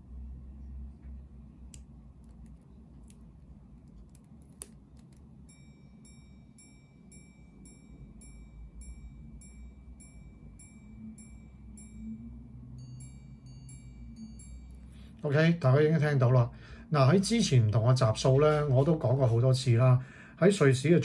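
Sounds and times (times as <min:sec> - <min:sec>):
hammer striking watch gong: 0:05.5 - 0:15.0.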